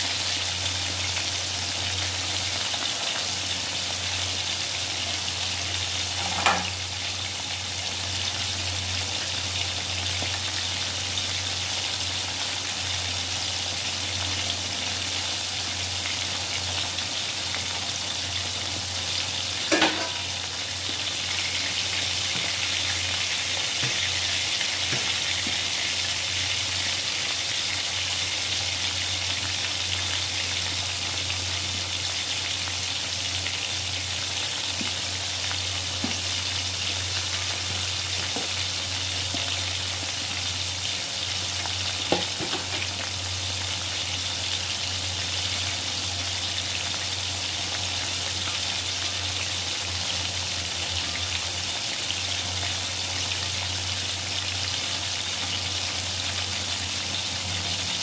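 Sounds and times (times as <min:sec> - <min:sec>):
chicken deep-frying in oil: 0:00.0 - 0:58.0.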